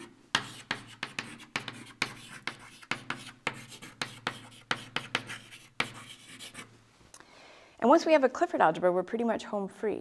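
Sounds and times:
chalk tapping and scraping: 0:00.0 - 0:06.8.

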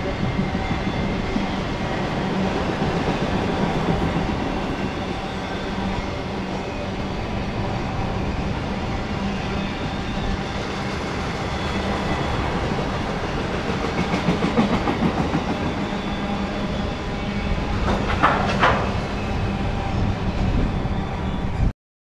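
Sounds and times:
train wheels rumbling on rails: 0:00.0 - 0:21.7
clickety-clack over rail joints: 0:11.6 - 0:15.9, 0:17.7 - 0:19.2.

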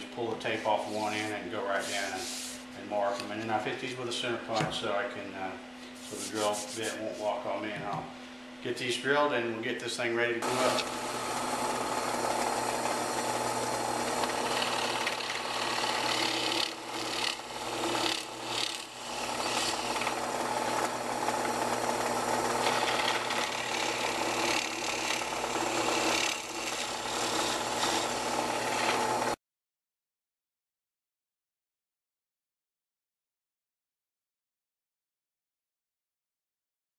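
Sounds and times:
drill press boring wood: 0:10.4 - 0:29.4.

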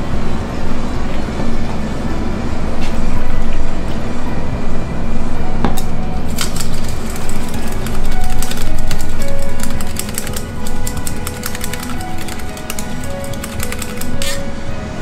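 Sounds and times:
background music: 0:00.0 - 0:15.0
wire whisk clicking in metal bowl: 0:06.3 - 0:14.4.

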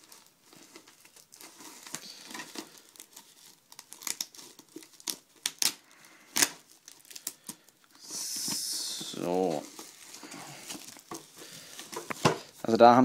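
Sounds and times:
plastic wrapping crinkling: 0:00.0 - 0:13.0.

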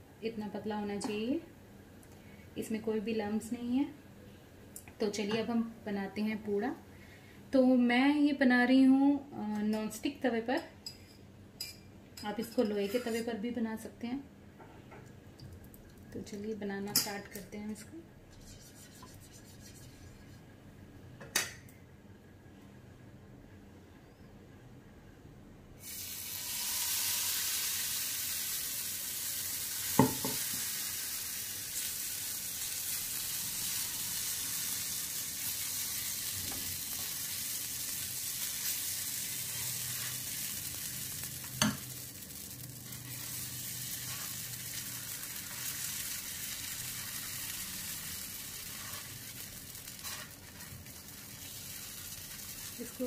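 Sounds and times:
batter sizzling on a hot pan: 0:25.8 - 0:53.0.

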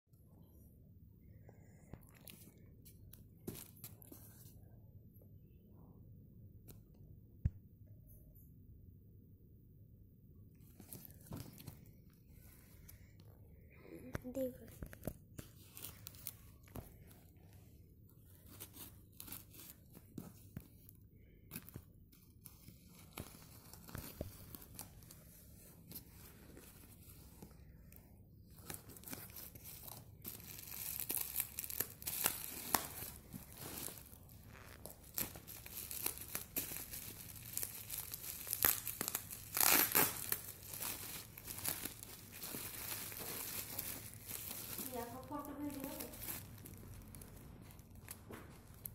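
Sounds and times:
bubble wrap crinkling: 0:10.6 - 0:13.0, 0:14.3 - 0:48.9
packing tape tearing off cardboard: 0:34.8 - 0:42.0.

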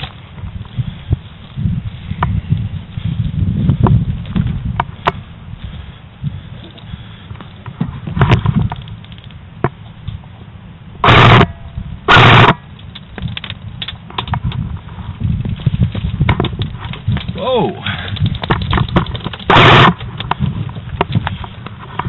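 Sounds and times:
airsoft gun full-auto bursts: 0:12.1 - 0:12.6, 0:19.5 - 0:20.0.

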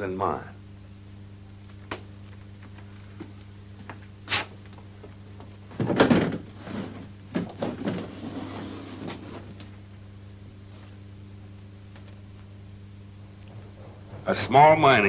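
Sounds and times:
steady low hum: 0:00.0 - 0:15.0
knocks and rattle: 0:05.7 - 0:06.5
door clunk and scrape: 0:05.8 - 0:09.5.

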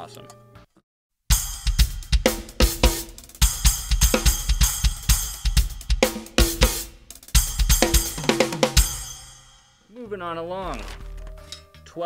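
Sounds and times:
cymbal crashes: 0:01.3 - 0:09.9
drum kit groove: 0:01.3 - 0:11.8.

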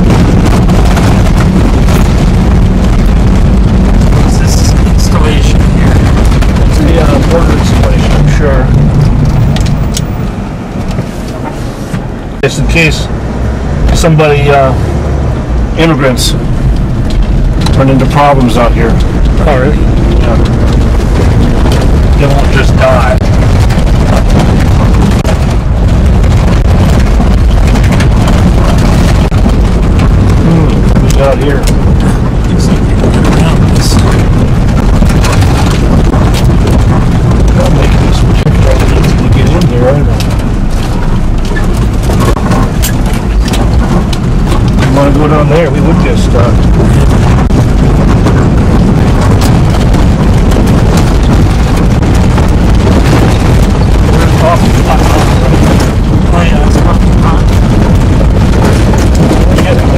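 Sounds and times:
vehicle rumbling on dirt road: 0:00.0 - 0:59.9
wind buffeting microphone: 0:00.0 - 0:59.9
rattles and knocks: 0:16.3 - 0:59.9.

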